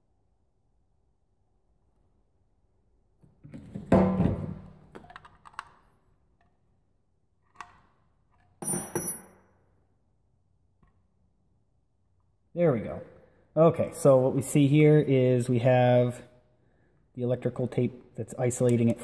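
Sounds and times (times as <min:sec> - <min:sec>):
ringing metallic clink: 0:08.6 - 0:09.4.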